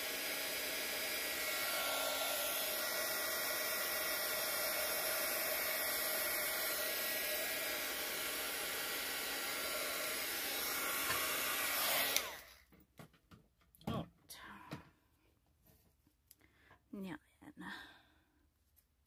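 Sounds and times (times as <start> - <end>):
heat gun blowing air: 0.0 - 12.6.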